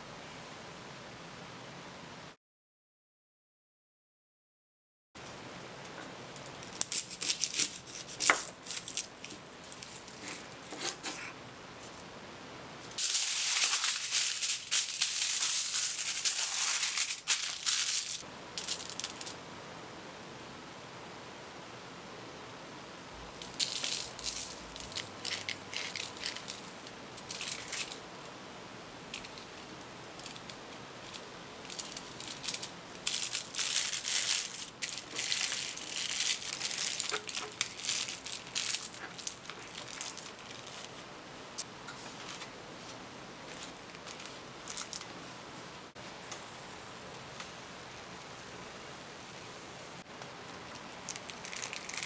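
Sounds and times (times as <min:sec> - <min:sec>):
aluminium foil crinkling: 0:06.3 - 0:12.0, 0:12.9 - 0:19.4, 0:23.4 - 0:28.0, 0:29.1 - 0:41.0, 0:43.4 - 0:45.1, 0:50.4 - 0:52.0.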